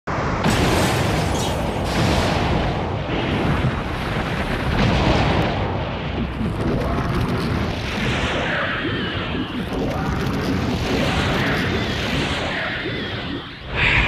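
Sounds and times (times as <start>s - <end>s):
rumbling and crashing explosions: 0.1s - 14.0s.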